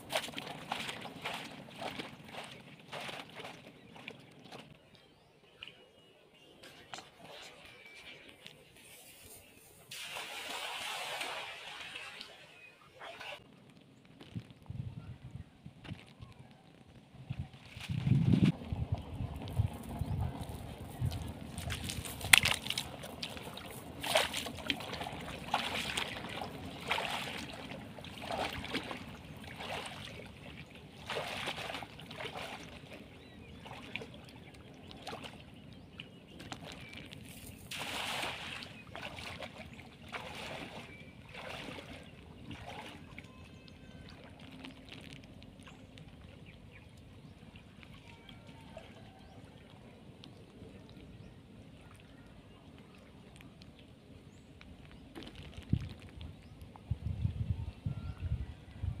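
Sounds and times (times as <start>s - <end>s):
person wading through water: 0.0s - 6.0s, 17.5s - 56.8s.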